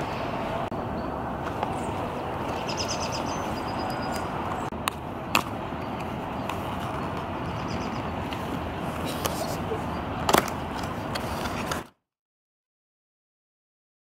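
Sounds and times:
outdoor background noise: 0.0s - 12.0s
bird chirping high notes: 0.9s - 4.7s.

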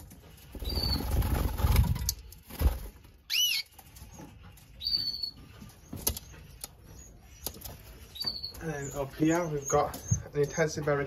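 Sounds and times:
canary chirping: 0.0s - 1.7s, 3.1s - 11.0s
bird wings flapping: 0.5s - 3.2s.

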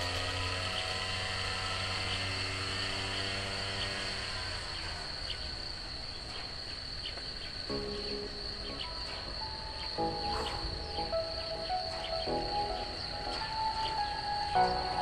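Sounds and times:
crickets chirring: 0.0s - 15.0s
held low tones: 7.7s - 15.0s.

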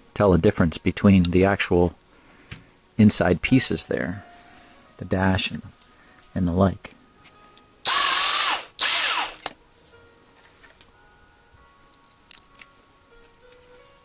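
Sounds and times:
cordless drill whirring: 7.8s - 9.5s
faint clicks of small parts: 11.6s - 14.0s.

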